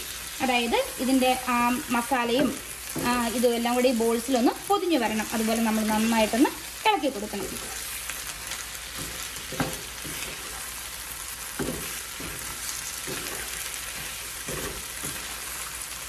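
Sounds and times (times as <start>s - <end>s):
food sizzling in a pan: 0.0s - 16.0s
spoon scraping a pan: 7.3s - 16.0s.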